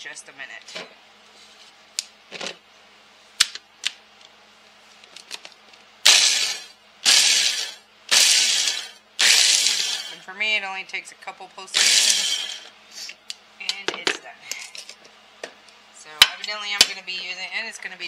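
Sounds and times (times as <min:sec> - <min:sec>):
food processor whirring and crunching: 0:06.0 - 0:10.2, 0:11.7 - 0:12.8.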